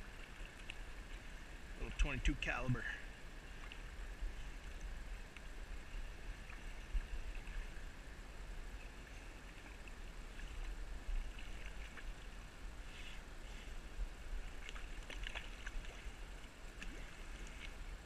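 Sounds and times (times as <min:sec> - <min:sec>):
stream water rushing: 0:00.0 - 0:18.0
faint ticks: 0:00.2 - 0:01.2, 0:04.6 - 0:05.6
wind rumble on microphone: 0:03.6 - 0:12.9.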